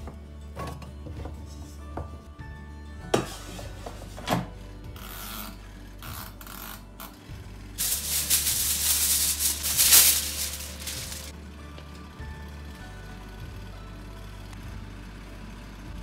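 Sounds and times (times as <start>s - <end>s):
plastic bag crinkling: 7.8s - 11.3s.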